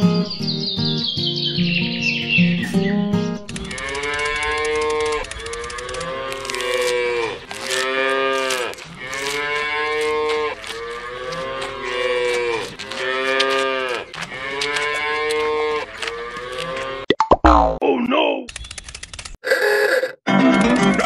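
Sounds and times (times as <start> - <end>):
cows mooing: 3.7 - 17.1.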